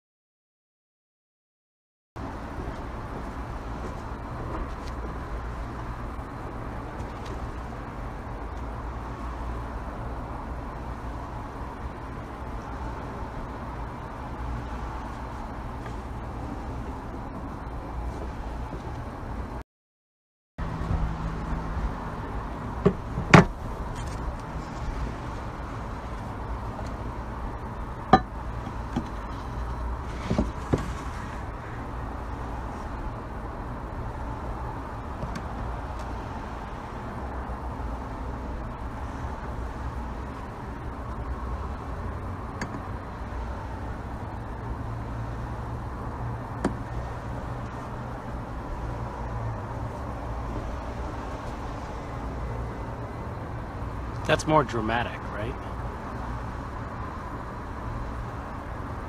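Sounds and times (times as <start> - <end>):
low outdoor rumble: 2.2 - 19.6.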